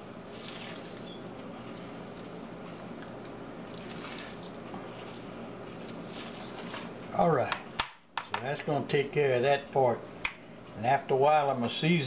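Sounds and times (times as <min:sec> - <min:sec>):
steady low hum: 0:00.0 - 0:12.0
wet squishing of membrane peeling: 0:00.3 - 0:05.2.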